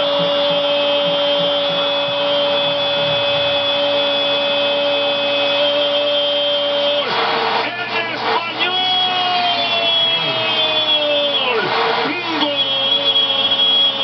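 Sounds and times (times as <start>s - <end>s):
crowd noise: 7.0s - 14.0s.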